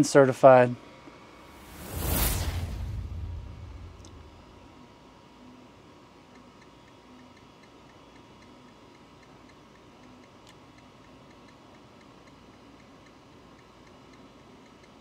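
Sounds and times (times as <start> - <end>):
short faint low hum: 1.5 - 4.8.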